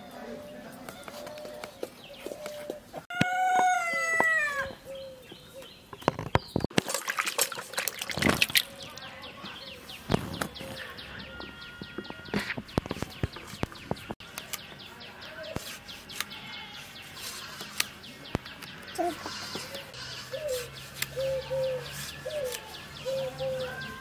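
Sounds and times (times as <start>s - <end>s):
small birds chirping: 0.0s - 6.7s, 7.9s - 24.0s.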